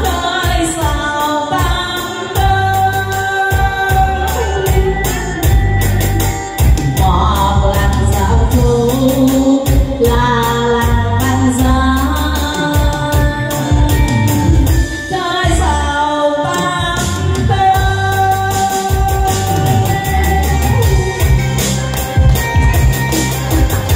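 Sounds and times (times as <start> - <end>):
backing track with bass beat: 0.0 - 23.9
woman singing into microphone: 0.0 - 23.9.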